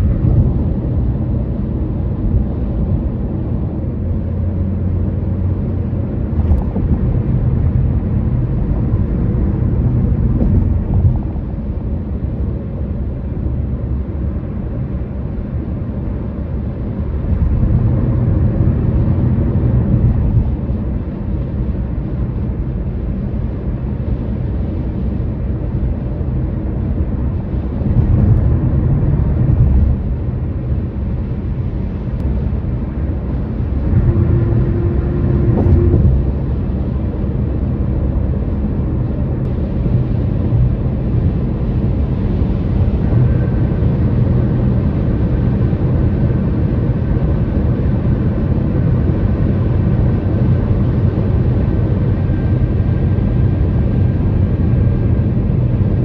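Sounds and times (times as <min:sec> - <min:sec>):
tyres rumbling on pavement: 0:27.6 - 0:56.0.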